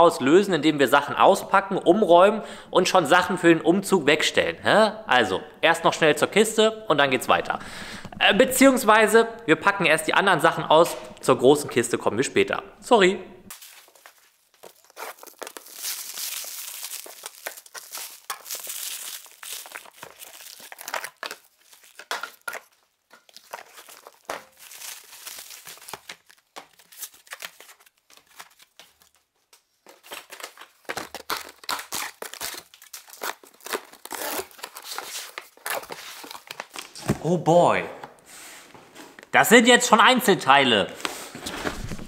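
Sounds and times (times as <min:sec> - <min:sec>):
packaging tearing and crinkling: 0:13.5 - 0:29.3, 0:29.9 - 0:37.0.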